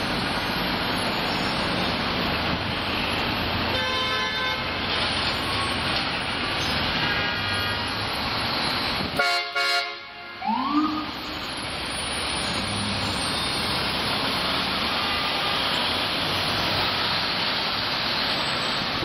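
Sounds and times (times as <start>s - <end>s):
street traffic din: 0.0s - 19.0s
siren whoop: 10.4s - 11.6s.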